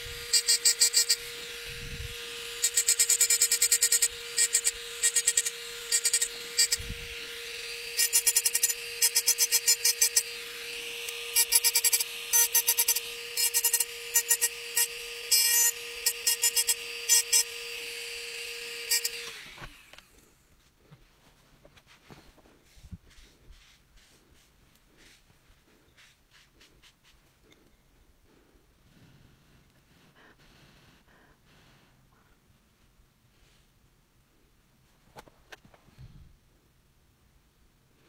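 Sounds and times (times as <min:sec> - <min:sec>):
rotary tool whining: 0:00.0 - 0:20.4.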